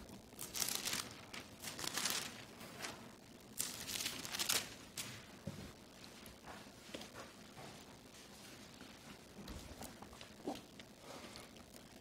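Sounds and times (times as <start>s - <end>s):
pages being turned: 0.4s - 3.0s.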